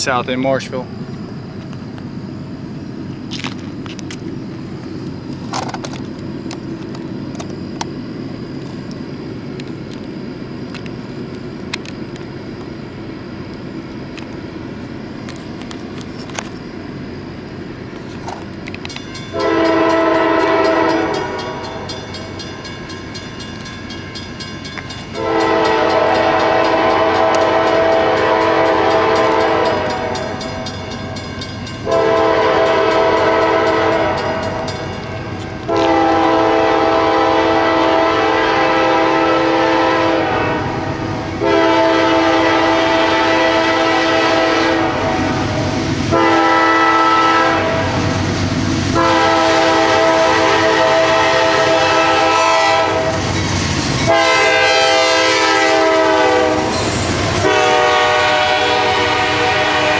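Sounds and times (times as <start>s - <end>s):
low train rumble: 0.0s - 59.9s
locomotive air horn: 19.3s - 21.6s, 25.1s - 30.4s, 31.8s - 34.6s, 35.6s - 48.0s, 48.9s - 53.2s, 54.0s - 59.9s.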